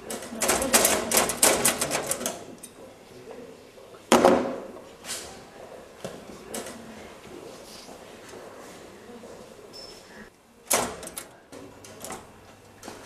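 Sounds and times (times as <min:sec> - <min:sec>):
knocks against metal lockers: 0:00.1 - 0:02.4.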